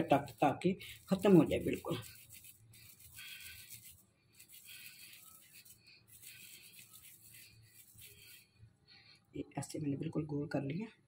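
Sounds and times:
wet palms rolling dough: 0.0s - 9.0s.

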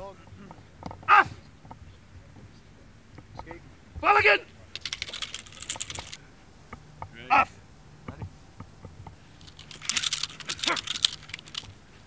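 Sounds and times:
rustling and clicks: 4.5s - 7.2s, 8.0s - 12.0s.

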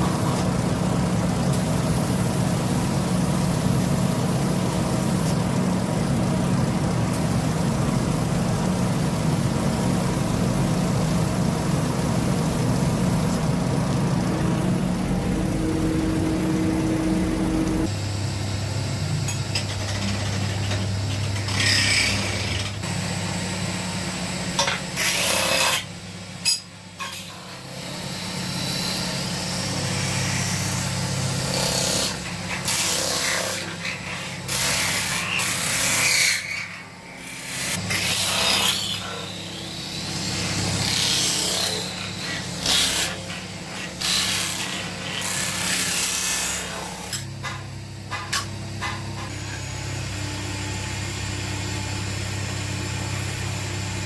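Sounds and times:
metal lathe humming: 3.7s - 18.0s
steel tool scraping spinning metal: 19.8s - 22.8s.

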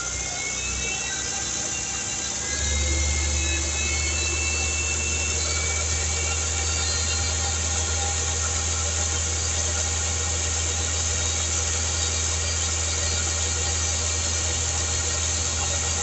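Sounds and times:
car engine running at raised revs: 0.0s - 16.0s.

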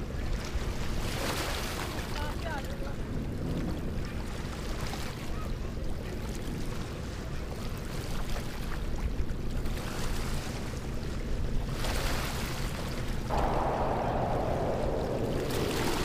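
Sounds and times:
wind buffeting microphone: 13.3s - 16.0s.

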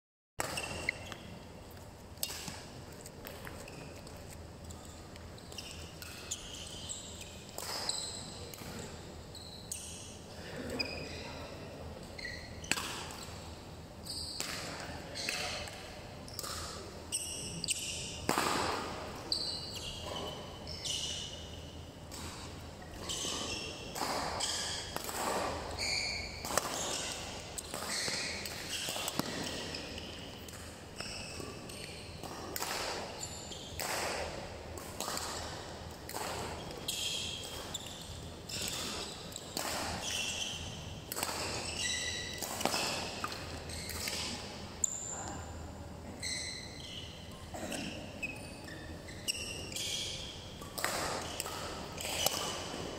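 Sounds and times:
rackets hitting shuttlecock: 0.4s - 1.3s, 2.1s - 4.8s, 5.5s - 9.0s, 12.7s - 13.4s, 14.4s - 20.4s, 22.1s - 45.0s, 49.8s - 52.9s
shoes squeaking on court: 0.4s - 52.9s.

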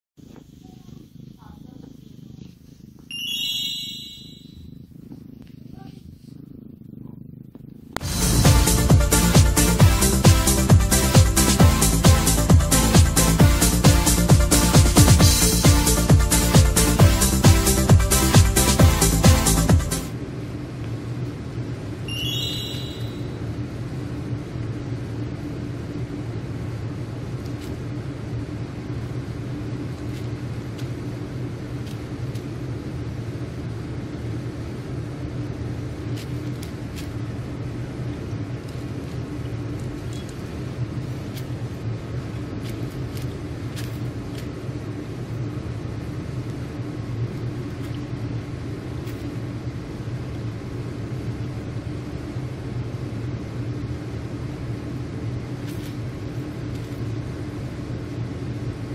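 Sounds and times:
steady low hum: 0.2s - 58.9s.

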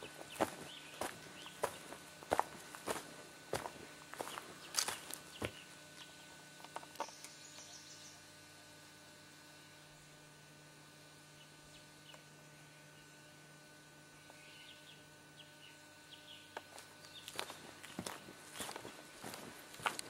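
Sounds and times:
footsteps on dry leaves: 0.0s - 5.7s, 16.7s - 20.0s
steady low hum: 0.0s - 20.0s.

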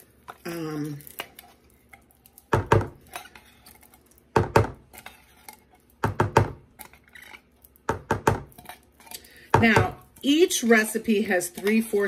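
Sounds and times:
spatula scraping tin can: 3.0s - 4.0s, 4.8s - 5.9s.

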